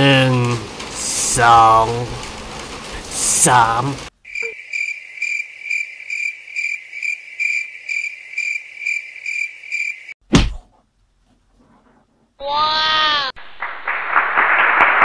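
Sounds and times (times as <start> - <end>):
cricket chirping: 4.2 - 10.2
sudden loud thump: 10.3 - 10.6.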